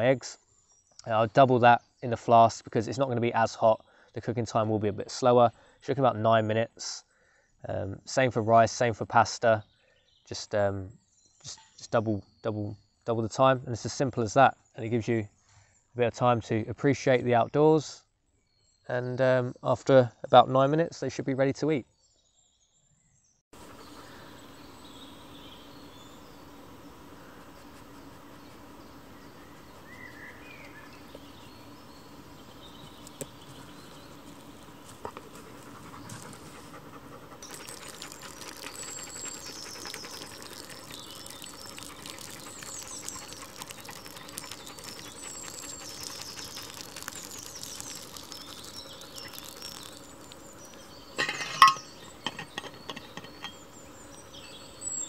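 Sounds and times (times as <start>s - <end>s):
birds chirping: 23.6s - 55.0s
small ticks and rustles: 23.6s - 55.0s.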